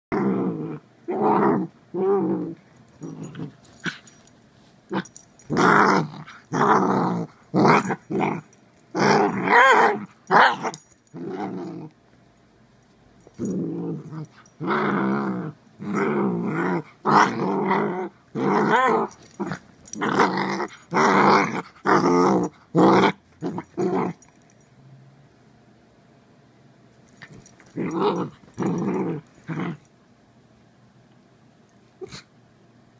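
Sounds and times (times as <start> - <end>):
dog play-growling: 0.1 - 4.3, 4.9 - 12.0, 13.2 - 24.5, 27.1 - 29.9.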